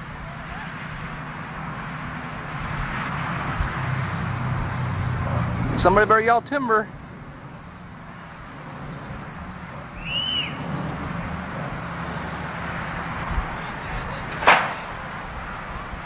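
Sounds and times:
outdoor rushing noise: 0.0s - 16.0s
whistled call: 9.9s - 11.0s.

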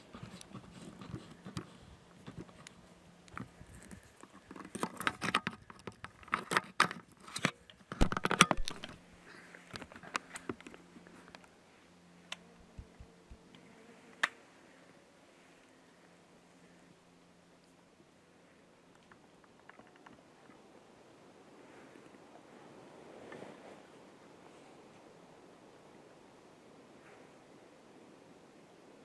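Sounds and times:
gear clicks and knocks: 3.3s - 9.0s.

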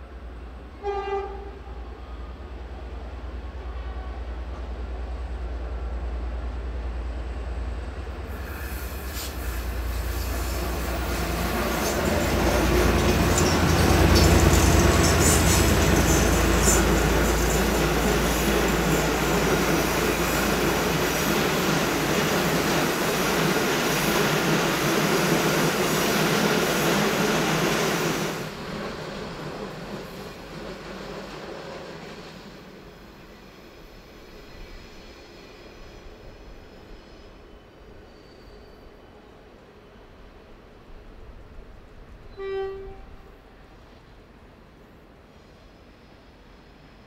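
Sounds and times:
train passing: 0.0s - 47.0s
wheel squeal on rails: 8.3s - 20.4s, 34.4s - 39.1s.

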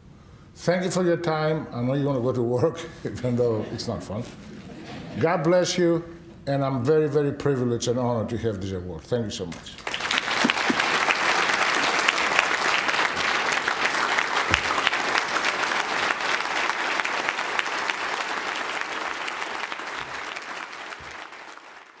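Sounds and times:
audience applauding: 9.8s - 22.0s.

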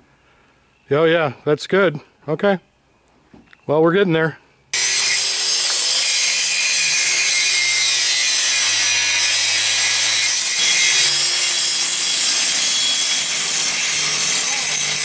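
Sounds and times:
angle grinder grinding metal: 4.8s - 15.0s.

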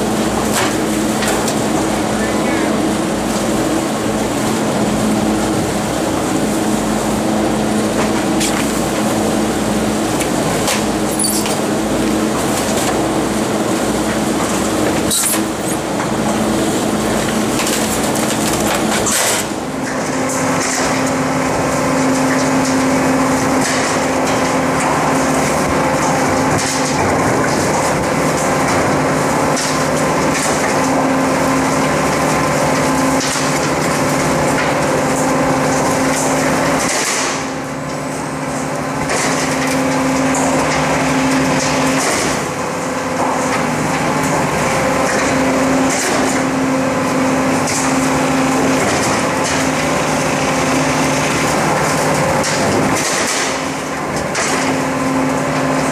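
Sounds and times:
garbage truck compactor drone: 0.0s - 55.9s
rubbish cracking and crunching: 17.1s - 19.5s.

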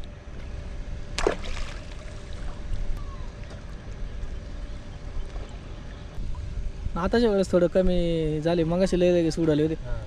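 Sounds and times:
steady low rumble: 0.0s - 10.0s
river water sloshing: 1.1s - 4.1s.

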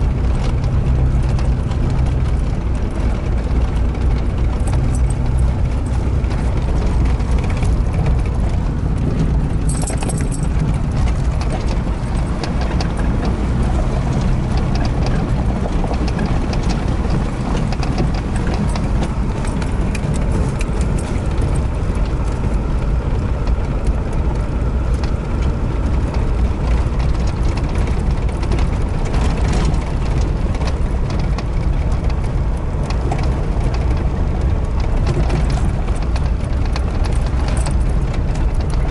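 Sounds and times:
engine and road rumble: 0.0s - 38.9s
tyres crunching over gravel: 0.0s - 38.9s
short clicks and rattles: 0.4s - 22.4s.

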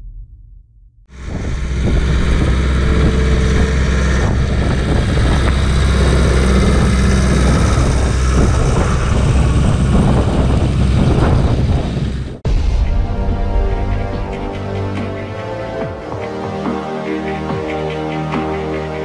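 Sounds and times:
tractor diesel engine running: 1.1s - 12.4s.

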